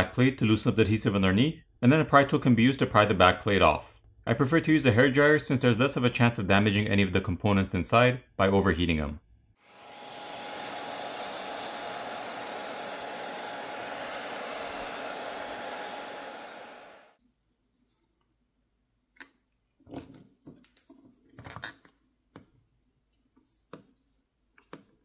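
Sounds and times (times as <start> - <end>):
hair dryer blowing: 9.6 - 17.2.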